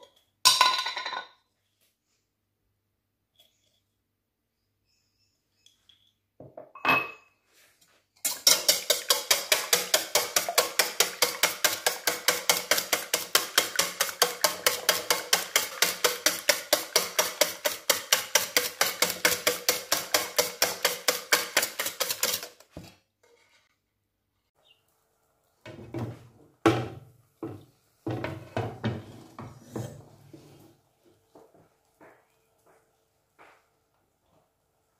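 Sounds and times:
cookware knocks and clatters: 0:00.0 - 0:01.4, 0:06.4 - 0:07.3, 0:08.3 - 0:23.0, 0:25.7 - 0:30.0
whisk beating eggs in metal bowl: 0:08.2 - 0:22.7.

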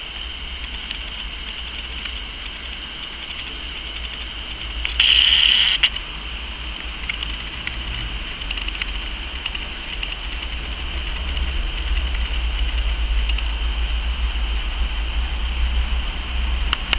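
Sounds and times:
high hiss: 0:00.0 - 0:07.0
low rumble: 0:00.0 - 0:16.9
faint ticks: 0:00.5 - 0:06.0, 0:06.8 - 0:13.6.

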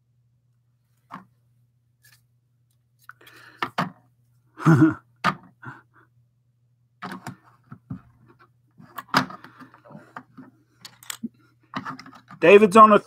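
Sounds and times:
plastic bricks clicking: 0:10.8 - 0:12.4.

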